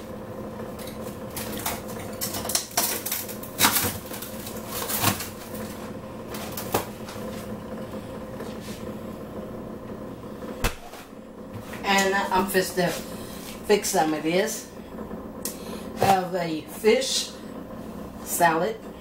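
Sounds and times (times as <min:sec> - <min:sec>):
refrigerator hum: 0:00.0 - 0:19.0
frozen packages knocking and rustling: 0:01.4 - 0:07.2.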